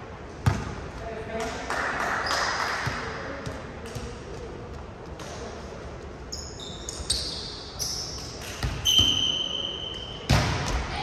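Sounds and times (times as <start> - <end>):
sneakers squeaking on gym floor: 6.3 - 10.8.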